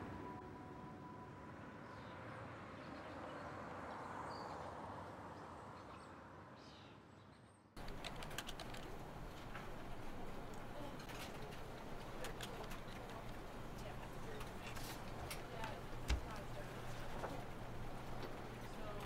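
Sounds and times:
sharp clicks: 7.8s - 13.4s.

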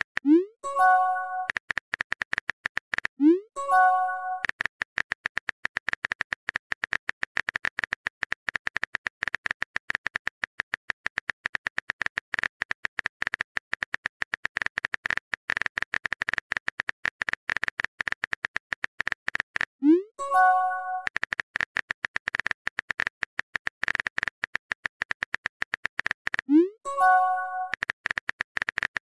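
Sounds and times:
keyboard typing clicks: 0.0s - 29.0s
message sent chime: 0.6s - 1.5s, 3.6s - 4.4s, 20.2s - 21.1s, 26.9s - 27.7s.

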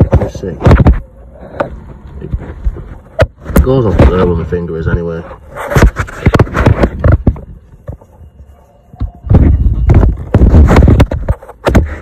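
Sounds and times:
gloved hands handling engine parts: 4.9s - 11.8s.

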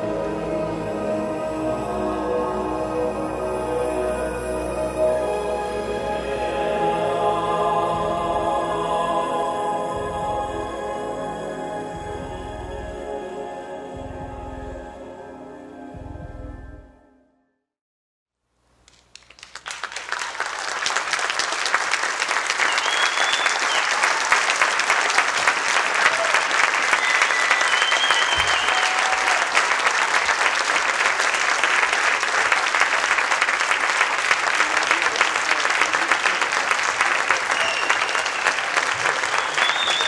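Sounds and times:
audience applauding: 18.9s - 40.0s.

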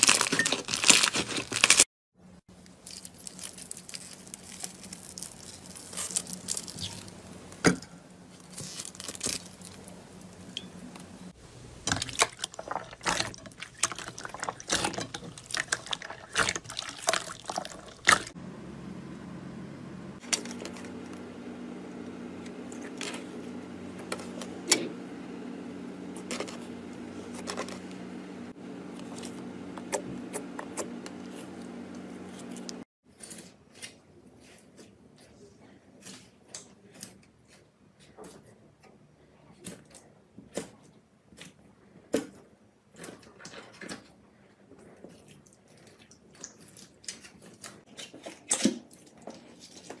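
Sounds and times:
slime crackling and popping: 2.7s - 7.2s, 11.8s - 18.4s
slime squishing: 2.7s - 7.6s, 11.8s - 18.4s.

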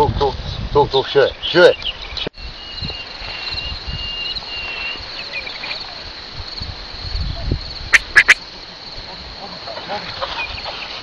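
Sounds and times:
crickets chirping: 0.8s - 11.0s
thin whistle-like tone: 8.0s - 8.4s.

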